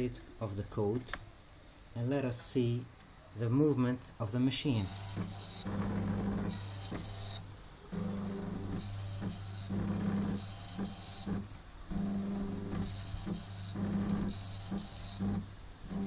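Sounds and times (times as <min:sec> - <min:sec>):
stepper motors buzzing: 0:04.8 - 0:16.0.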